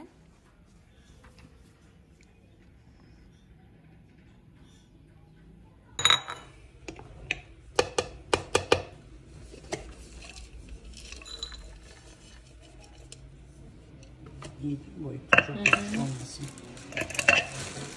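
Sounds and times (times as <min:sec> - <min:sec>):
spatula knocking in plastic bowl: 0:07.8 - 0:09.0
walnuts rustling into bowl: 0:15.4 - 0:17.9.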